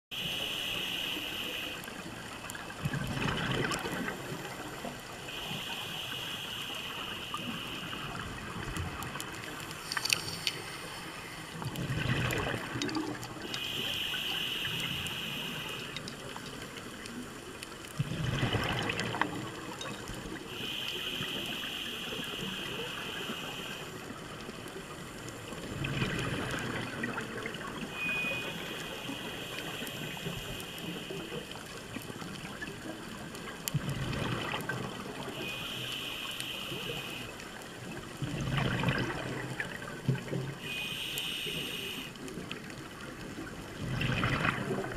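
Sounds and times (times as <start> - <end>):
diver inhaling through regulator: 0.2 - 1.9, 13.4 - 16.0, 40.6 - 42.2
exhaled bubbles gurgling: 0.2 - 44.9.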